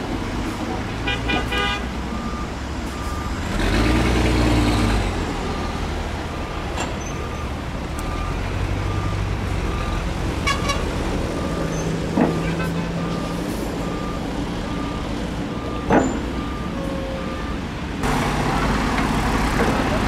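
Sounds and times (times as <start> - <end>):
diesel machinery engine running: 0.0 - 20.0
reversing alarm beeping: 2.2 - 3.4, 6.4 - 17.6.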